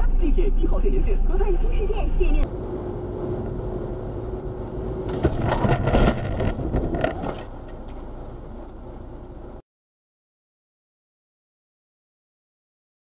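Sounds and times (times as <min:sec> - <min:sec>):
road noise inside car: 0:00.0 - 0:09.6.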